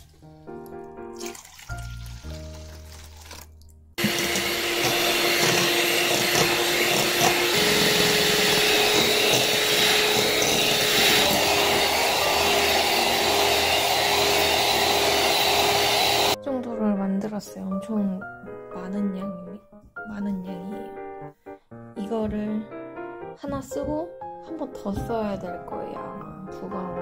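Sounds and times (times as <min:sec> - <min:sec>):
piano background music: 0:00.0 - 0:27.0
electric hand mixer whirring: 0:04.0 - 0:16.4.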